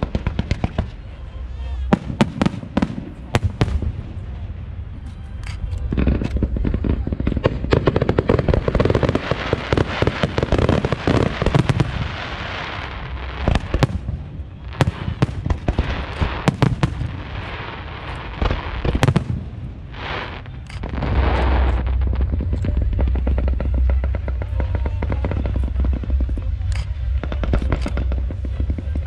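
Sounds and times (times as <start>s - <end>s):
firework fountains crackling: 0.0s - 29.0s
low rumble: 10.3s - 29.0s.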